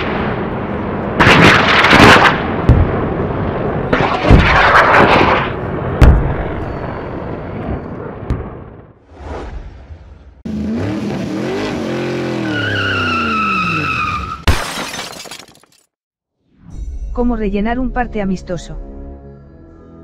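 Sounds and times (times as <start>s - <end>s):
booming explosion-like hits: 0.0s - 8.9s.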